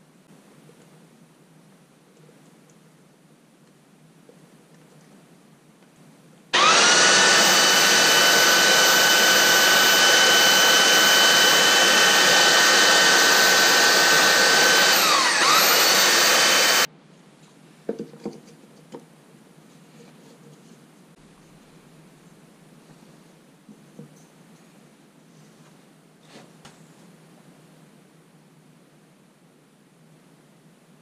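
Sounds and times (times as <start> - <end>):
electric sander whining: 6.6 - 16.9.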